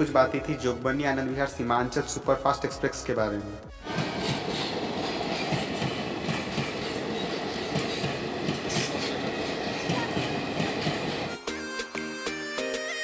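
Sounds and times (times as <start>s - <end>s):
train rumble: 3.8s - 11.4s
train wheels clattering: 3.8s - 11.4s.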